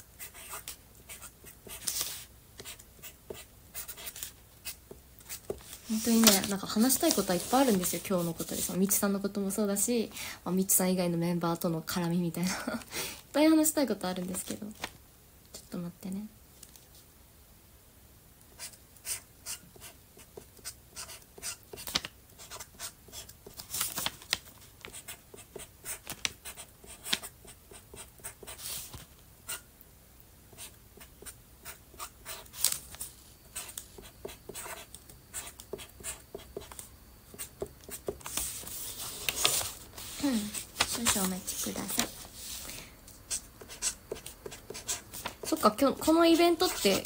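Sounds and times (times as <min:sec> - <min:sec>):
pen scratching on paper: 0:00.2 - 0:06.3, 0:18.6 - 0:23.3, 0:33.5 - 0:38.9, 0:43.3 - 0:45.6, 0:46.6 - 0:47.0.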